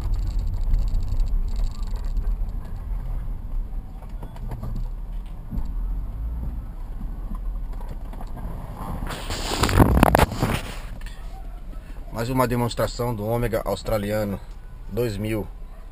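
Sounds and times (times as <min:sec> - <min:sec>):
car engine rumble from inside: 0:00.0 - 0:15.9.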